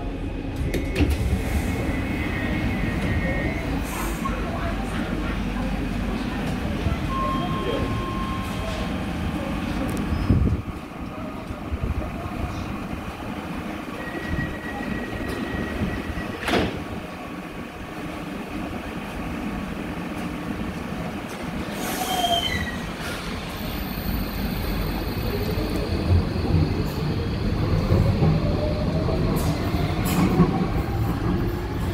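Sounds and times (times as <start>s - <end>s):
train doors shutting knock: 16.1s - 17.0s.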